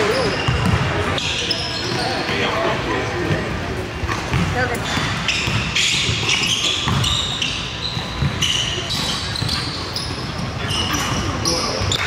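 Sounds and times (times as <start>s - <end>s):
players' voices: 0.0s - 12.0s
sneakers squeaking: 0.0s - 12.0s
basketball bouncing: 0.4s - 1.0s, 4.1s - 10.5s.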